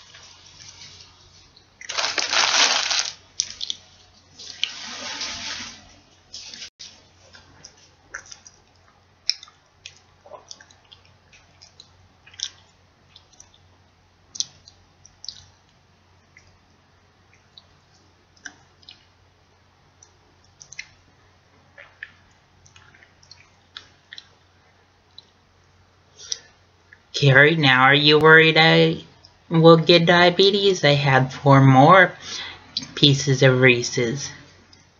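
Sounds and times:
chewing with wet smacks: 7.3s - 19.2s, 19.9s - 25.5s.

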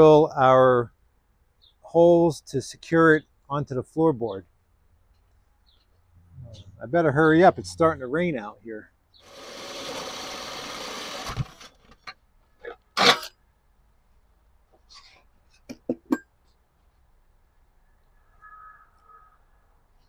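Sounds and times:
power drill with hole saw cutting: 9.2s - 12.0s, 13.0s - 13.3s.

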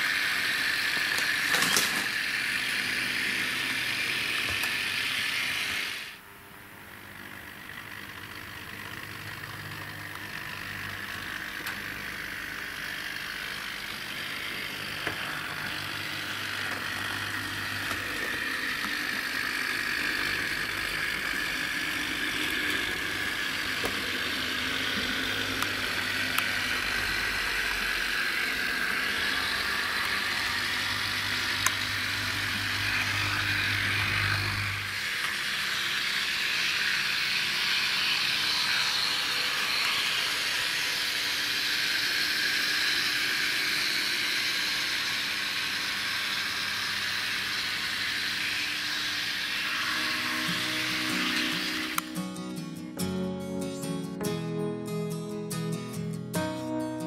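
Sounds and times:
model tram motor whine: 0.0s - 53.0s
low hum: 9.0s - 35.2s.

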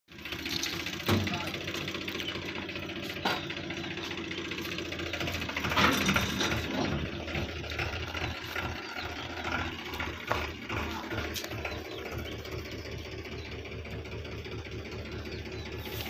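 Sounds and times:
engine running: 0.1s - 16.0s.

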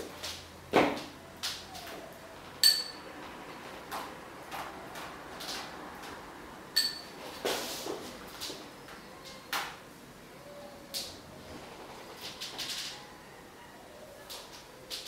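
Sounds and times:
sharp metallic clinks: 2.6s - 3.0s.

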